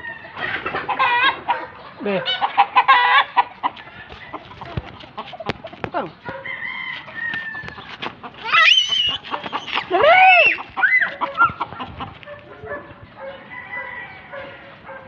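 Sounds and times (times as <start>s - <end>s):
chickens clucking: 0.0s - 15.0s
rooster crowing: 6.3s - 7.8s, 13.2s - 15.0s.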